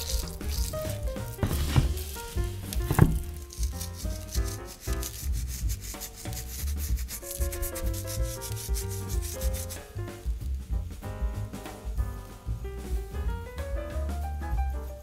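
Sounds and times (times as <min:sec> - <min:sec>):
gritty crackle of salt crystals: 0:00.0 - 0:06.4
soft background music: 0:00.0 - 0:15.0.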